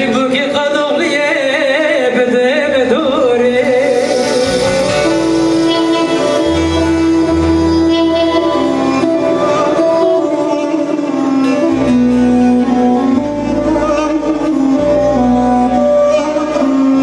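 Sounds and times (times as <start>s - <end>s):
keyboard playing melody: 0.0s - 17.0s
low bass line: 2.7s - 17.0s
long-necked lute melody: 3.9s - 17.0s.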